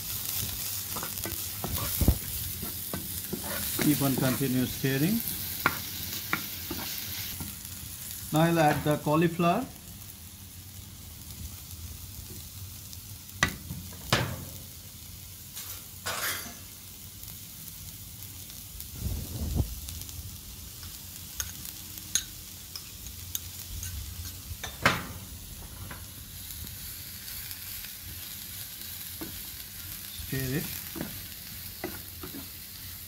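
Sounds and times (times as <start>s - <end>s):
onion sizzling in oil: 0.0s - 33.0s
sharp knocks against pan: 13.4s - 14.5s.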